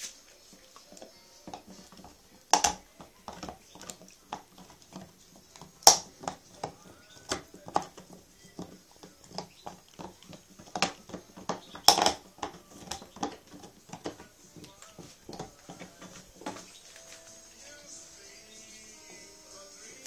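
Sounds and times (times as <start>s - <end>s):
dog gnawing bone: 0.5s - 16.8s.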